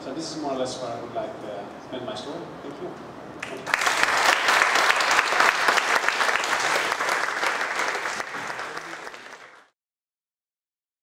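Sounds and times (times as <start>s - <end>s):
audience applauding: 3.4s - 9.7s.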